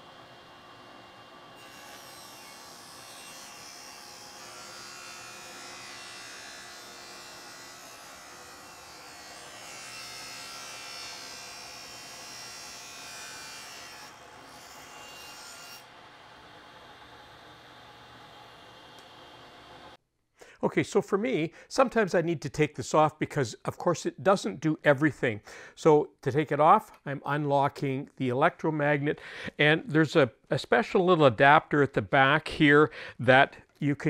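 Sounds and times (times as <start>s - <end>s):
table saw ripping wood: 1.6s - 15.9s.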